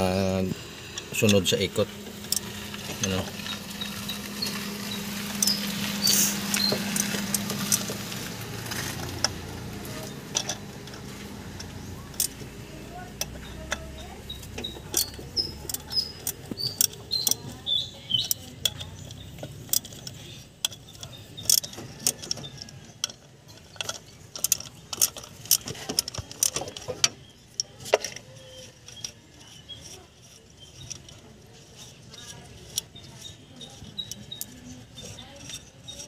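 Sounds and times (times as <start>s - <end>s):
socket wrench clicking: 13.2s - 26.8s.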